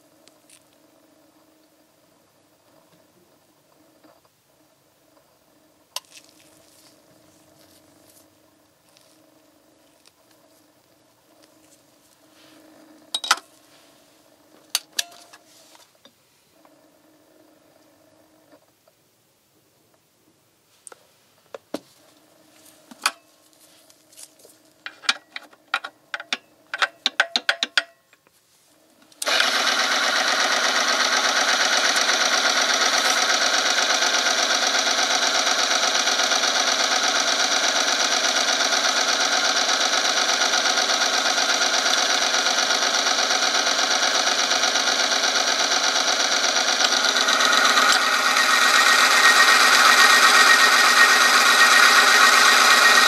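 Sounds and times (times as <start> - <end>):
electric motor running: 6.0 - 14.8, 28.8 - 53.0
clicks and knocks of handling: 24.8 - 28.3.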